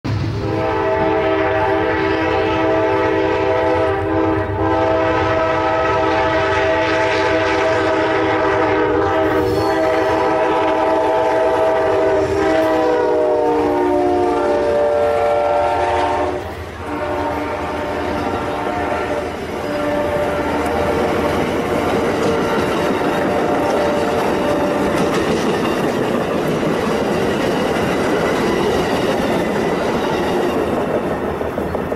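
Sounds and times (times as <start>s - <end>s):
passing train cars rumbling: 0.0s - 31.9s
train air horn: 0.1s - 25.4s.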